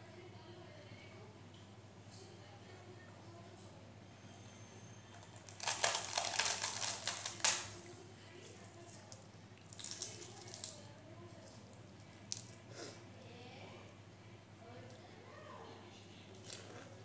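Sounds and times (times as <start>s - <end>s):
flatbread crackling as torn by hand: 5.2s - 7.9s, 8.5s - 10.9s.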